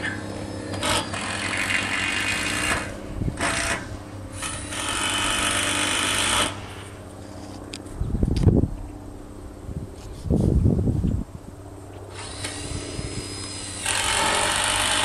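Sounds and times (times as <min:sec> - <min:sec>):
power tool running: 0:00.0 - 0:07.4, 0:12.1 - 0:15.0
steady low hum: 0:00.0 - 0:15.0.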